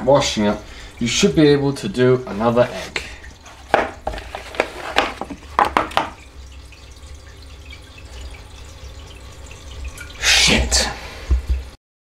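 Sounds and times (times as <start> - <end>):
wet sponge wiping hob: 2.6 - 5.5.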